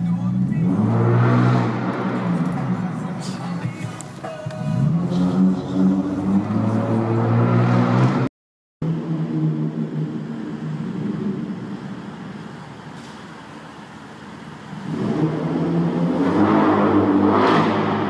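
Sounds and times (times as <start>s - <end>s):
straight-piped car exhaust: 8.8s - 18.0s.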